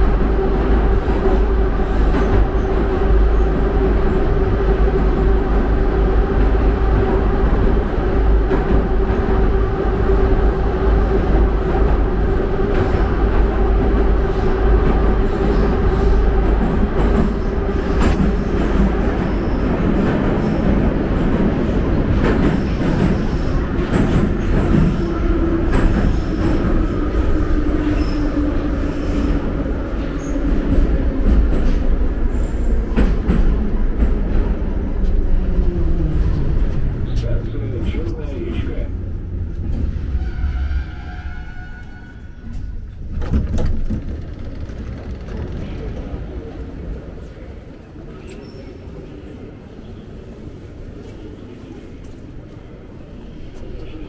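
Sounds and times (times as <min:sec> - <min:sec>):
metro train running roar and whine: 0:00.0 - 0:54.0
train wheels clattering and squealing: 0:15.3 - 0:35.2, 0:39.6 - 0:49.1.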